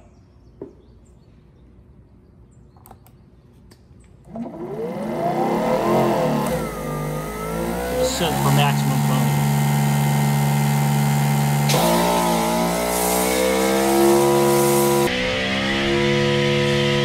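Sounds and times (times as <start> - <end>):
pressure washer motor whine: 4.3 - 17.0
hiss of water spray: 12.6 - 15.1.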